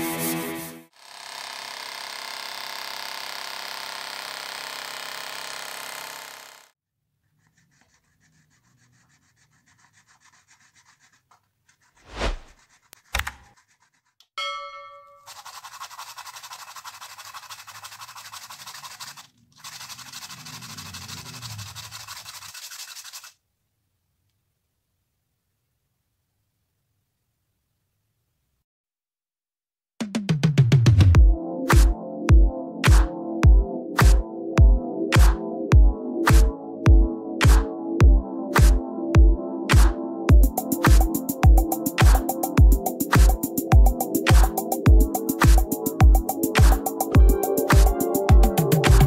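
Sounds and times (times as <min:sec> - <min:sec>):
small air pump motor running: 0:00.9 - 0:06.8, 0:15.3 - 0:23.2
plastic cap rubbed on sandpaper: 0:07.2 - 0:14.2, 0:15.3 - 0:23.4.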